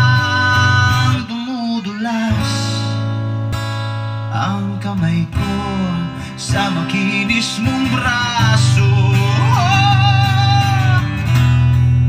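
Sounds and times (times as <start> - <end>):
heavy bass line: 0.0 - 1.3, 7.6 - 12.0
person singing: 0.0 - 3.0, 4.4 - 11.2
song with guitar over loudspeakers: 0.0 - 12.0.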